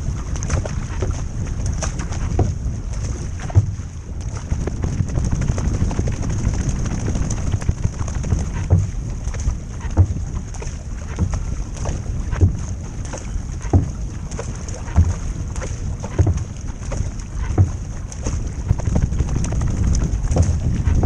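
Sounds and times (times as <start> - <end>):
paddle splashing in water: 0.0 - 21.0
water rushing along hull: 0.0 - 21.0
wind on microphone: 0.0 - 21.0
low thump: 3.5 - 3.8, 4.6 - 9.0, 9.8 - 10.2, 12.3 - 12.7, 13.6 - 14.0, 14.9 - 15.2, 16.0 - 16.6, 17.4 - 17.8, 18.6 - 21.0.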